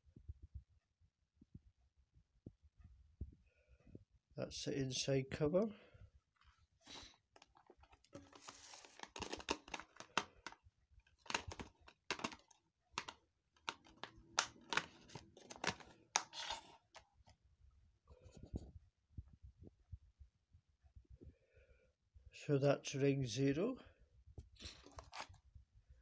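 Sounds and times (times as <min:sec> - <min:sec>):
plastic case clicking and rattling: 0:07.3 - 0:17.1.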